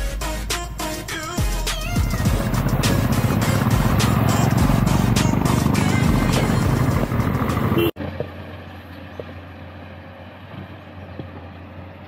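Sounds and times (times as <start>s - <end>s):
low engine hum: 1.4s - 12.0s
motorcycle riding wind and engine: 1.8s - 12.0s.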